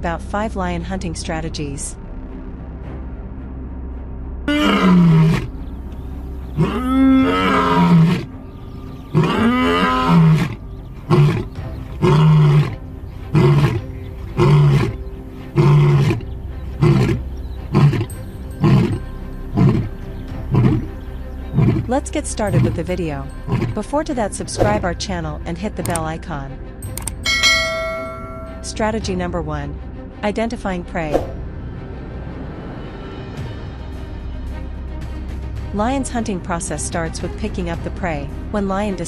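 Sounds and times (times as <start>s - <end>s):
lion grunting calls: 4.5s - 5.5s, 6.5s - 8.3s, 9.1s - 21.9s, 22.5s - 22.8s, 23.5s - 23.8s
lion roaring: 4.5s - 5.5s, 6.6s - 8.3s, 9.1s - 20.9s, 21.5s - 21.9s.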